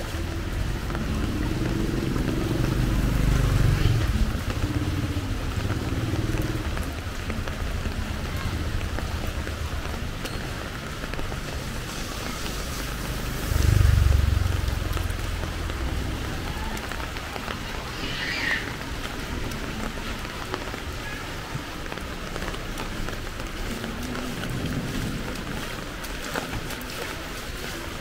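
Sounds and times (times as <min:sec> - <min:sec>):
heavy rain falling: 0:00.0 - 0:28.0
low rumble: 0:12.8 - 0:17.1.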